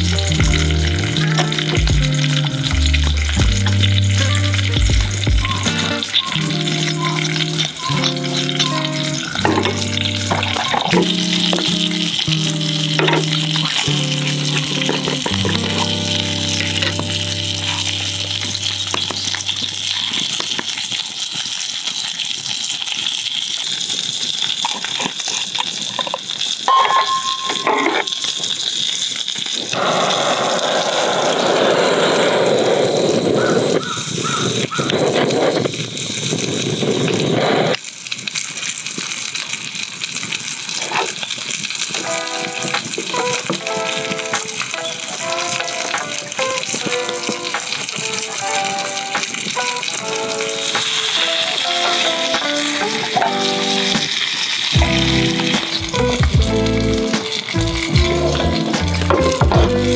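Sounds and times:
background music: 0:00.0 - 0:19.9, 0:42.0 - 0:59.9
torch lighter flame hissing: 0:28.2 - 0:37.9.

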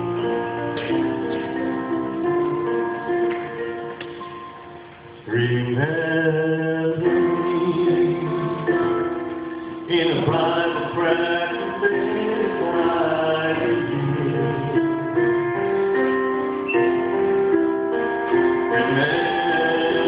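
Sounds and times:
instrumental accompaniment: 0:00.0 - 0:20.0
man singing into a microphone: 0:05.3 - 0:15.0, 0:18.7 - 0:20.0.

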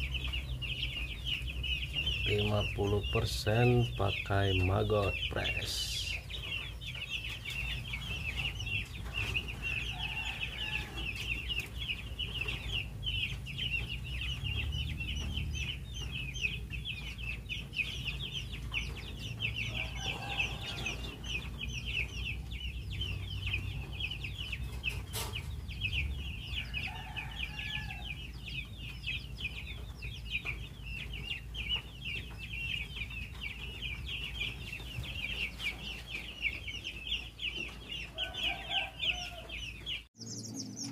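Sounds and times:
chicks peeping: 0:00.0 - 0:40.9.

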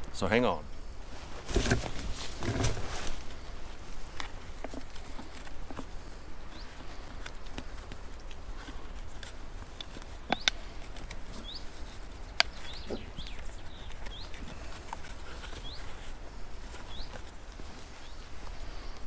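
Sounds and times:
bird chirping: 0:06.4 - 0:07.3, 0:10.1 - 0:17.3, 0:17.9 - 0:18.9.

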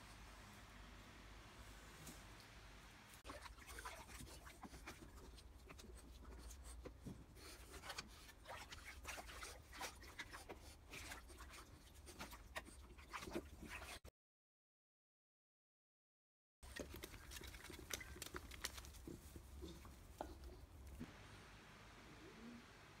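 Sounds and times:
dogs splashing in water: 0:03.2 - 0:06.1, 0:07.4 - 0:14.0, 0:16.6 - 0:19.6
paws scratching on wet plastic: 0:03.2 - 0:14.1, 0:16.6 - 0:21.1.

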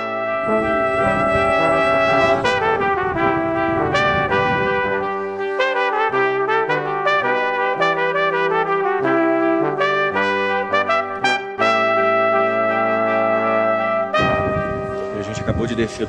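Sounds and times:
brass music with bass line: 0:00.0 - 0:16.0.

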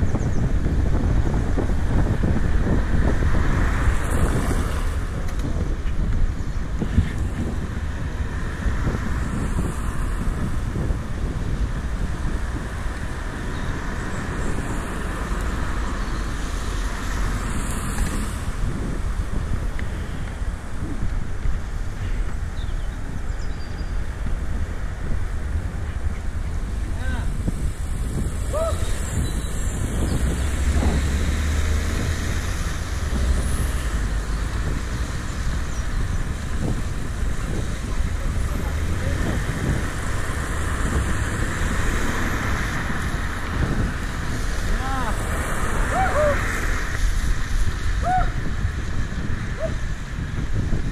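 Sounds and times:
wind rumble on microphone: 0:00.0 - 0:50.9
bicycle tyres hissing on wet road: 0:00.2 - 0:50.9
tyre hiss on wet road: 0:27.2 - 0:50.7.

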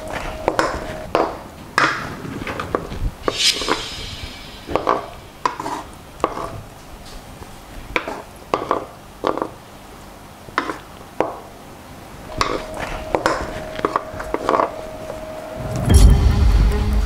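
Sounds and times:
wooden spatula scraping frying pan: 0:02.5 - 0:06.6, 0:12.3 - 0:15.3
short hiss: 0:03.2 - 0:05.6.

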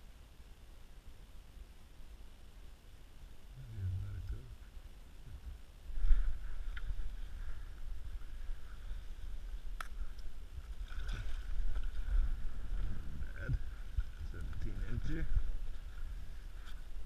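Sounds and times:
faint rustling: 0:04.1 - 0:17.0
low rumble: 0:05.3 - 0:17.0.

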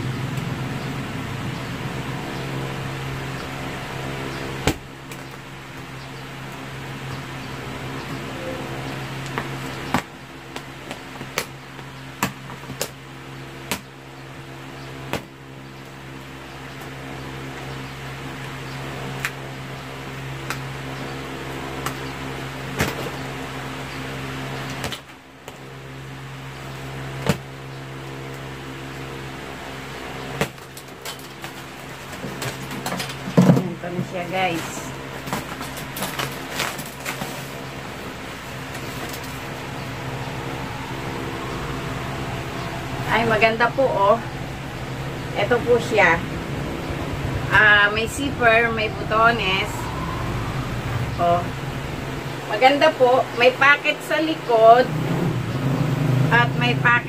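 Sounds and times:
electric motor hum: 0:34.4 - 0:53.5.

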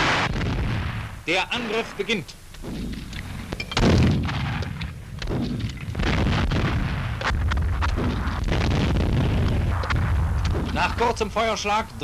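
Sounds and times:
loud blast: 0:00.0 - 0:11.3
gunshots: 0:00.0 - 0:11.5
low rumble: 0:02.6 - 0:11.2.

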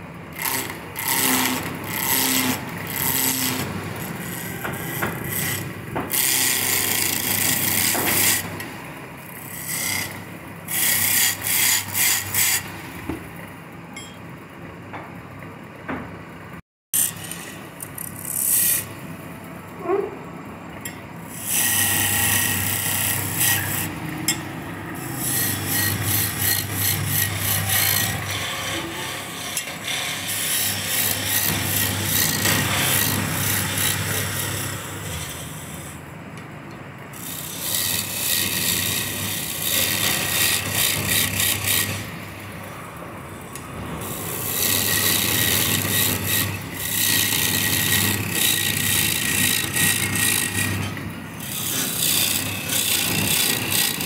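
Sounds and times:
lathe tool scraping wood: 0:00.4 - 0:12.7, 0:21.3 - 0:36.0, 0:37.2 - 0:42.4, 0:43.6 - 0:54.0.

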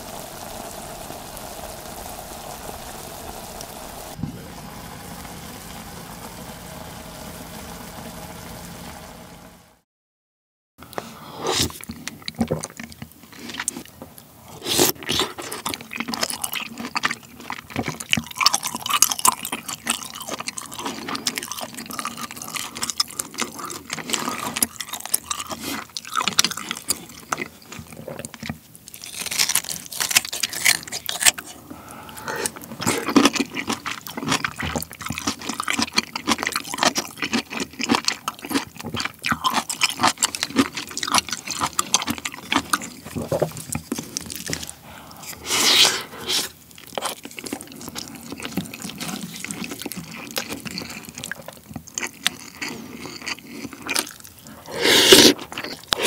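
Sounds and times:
wet chewing and slurping: 0:10.9 - 0:56.0
spoon scraping bowl: 0:54.5 - 0:56.0.

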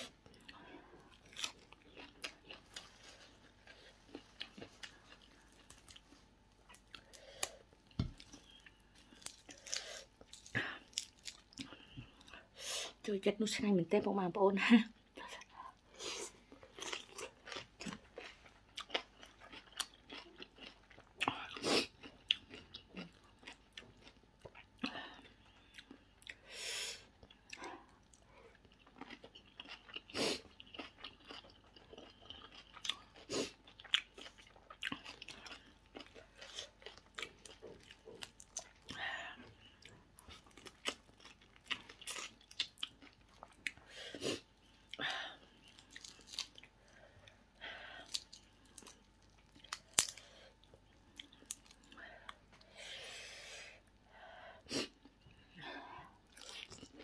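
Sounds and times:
chewing crunchy salad: 0:00.0 - 0:12.5, 0:15.7 - 0:52.8, 0:56.0 - 0:57.0.

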